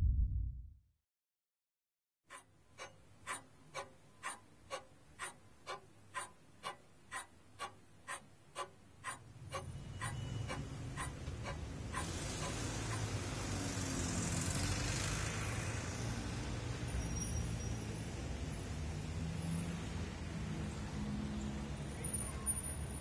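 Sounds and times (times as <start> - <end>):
wall clock ticking: 2.3 - 13.1.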